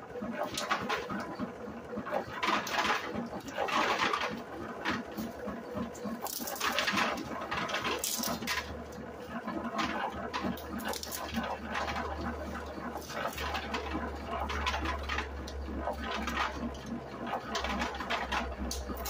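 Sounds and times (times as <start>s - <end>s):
pea pods crackling and rattling: 7.9s - 8.6s, 10.5s - 11.4s.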